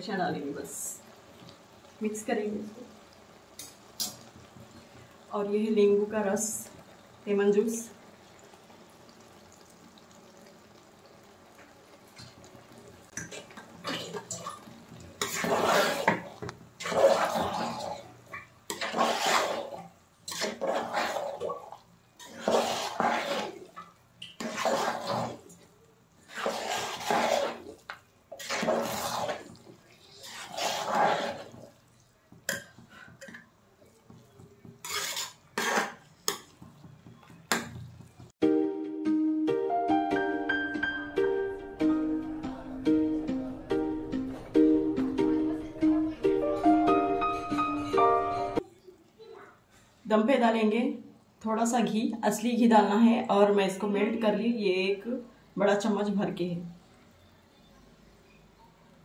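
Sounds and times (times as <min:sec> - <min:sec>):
rice mixed in metal pot: 0:13.1 - 0:38.4
wet scraping strokes: 0:15.2 - 0:18.1, 0:18.7 - 0:21.5, 0:22.2 - 0:25.6, 0:26.2 - 0:32.0, 0:34.8 - 0:36.8.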